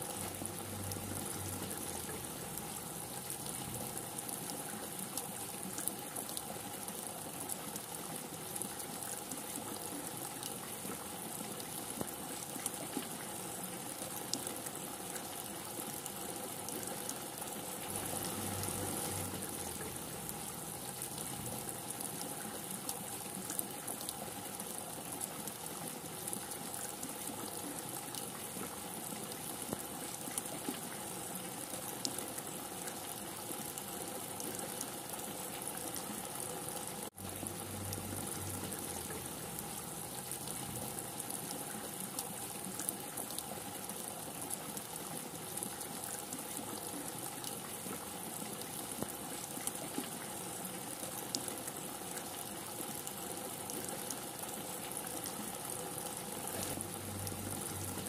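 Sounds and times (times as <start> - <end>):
heavy rain falling: 17.8 - 22.0, 55.8 - 58.0.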